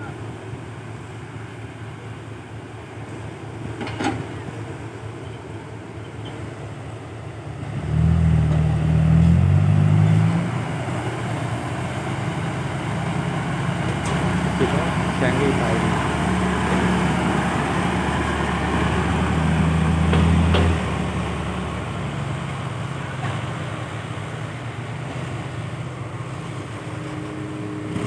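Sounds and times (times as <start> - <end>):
heavy diesel engines running: 0.0 - 28.0
engine revving under load: 7.6 - 28.0.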